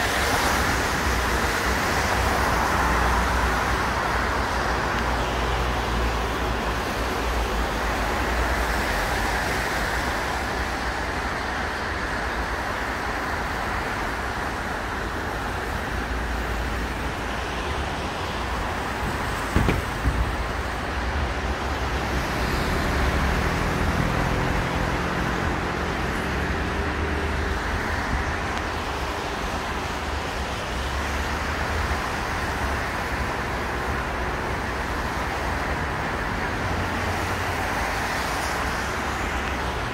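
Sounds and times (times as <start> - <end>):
traffic on a wet road: 0.0 - 39.9
short sharp knock: 19.6 - 20.3.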